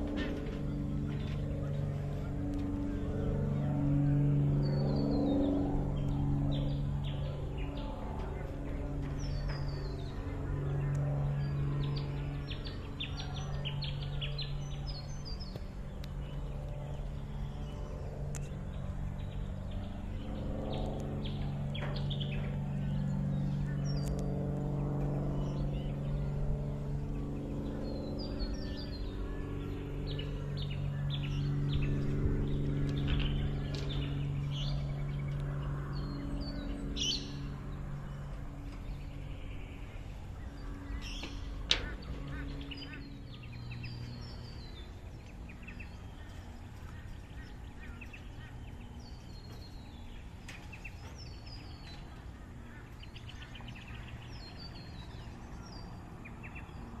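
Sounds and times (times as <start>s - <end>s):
low engine hum: 0.0s - 57.0s
wild birds chirping: 0.0s - 57.0s.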